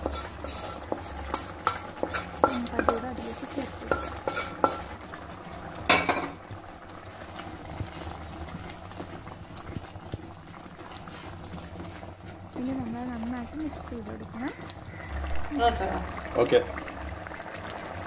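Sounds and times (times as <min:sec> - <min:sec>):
wooden spatula stirring: 0:00.0 - 0:04.9, 0:07.7 - 0:13.2
curry simmering in a pot: 0:00.0 - 0:18.0
spatula knocking on pot: 0:00.9 - 0:03.1.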